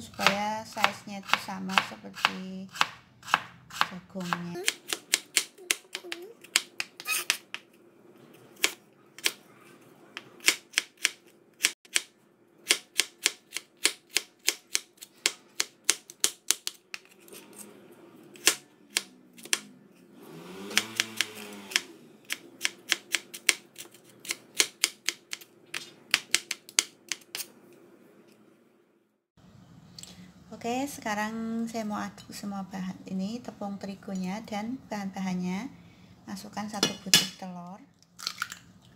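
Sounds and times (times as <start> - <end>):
knife chopping on plastic board: 0.2 - 7.6.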